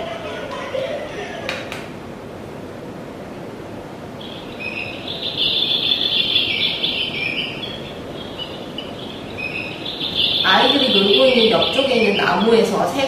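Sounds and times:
recorded birdsong chirps: 0:03.8 - 0:13.0.

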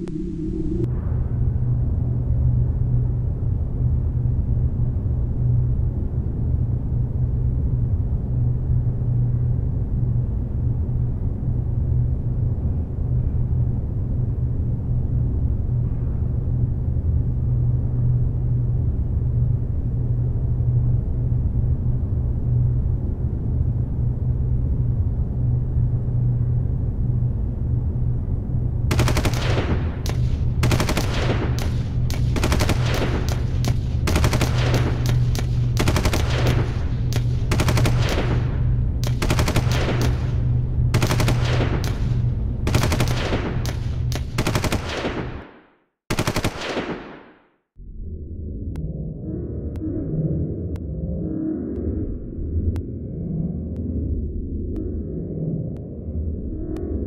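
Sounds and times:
steady low hum: 0:00.0 - 0:57.0
rapid-fire gunshots: 0:28.9 - 0:47.5.

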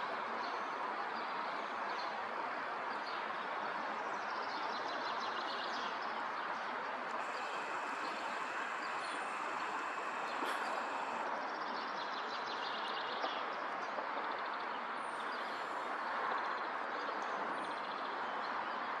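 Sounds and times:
outdoor background noise: 0:00.0 - 0:19.0
small birds twittering: 0:07.2 - 0:13.4.

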